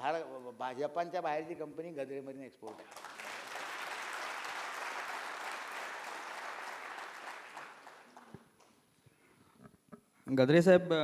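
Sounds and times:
audience applauding: 2.7s - 8.7s.

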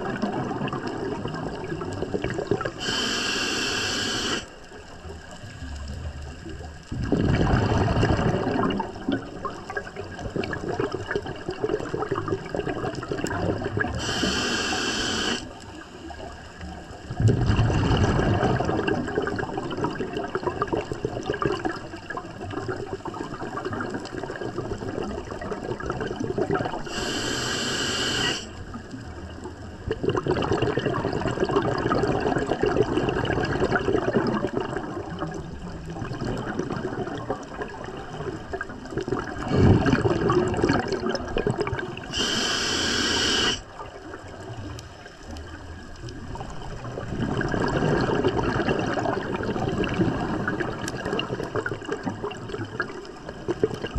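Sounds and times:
exhaled bubbles underwater: 0.0s - 53.9s
regulator inhalation hiss: 2.8s - 4.5s, 14.0s - 15.5s, 26.9s - 28.6s, 42.1s - 43.6s.

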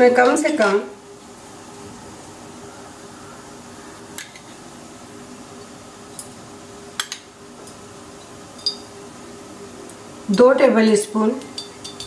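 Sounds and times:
glass bowl and spoon clinking: 8.2s - 8.9s, 11.5s - 12.0s.

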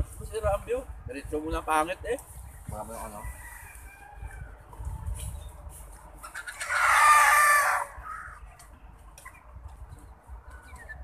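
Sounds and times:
rooster crowing: 3.0s - 4.6s, 6.4s - 8.3s.

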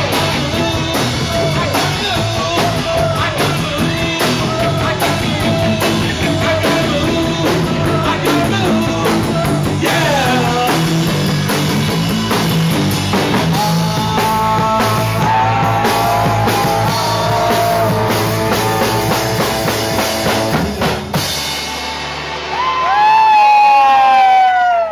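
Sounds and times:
man singing lead vocal: 0.0s - 11.9s, 13.2s - 19.7s
bass guitar: 0.0s - 24.9s
drum kit: 0.0s - 24.9s
electric guitars: 0.0s - 24.9s.

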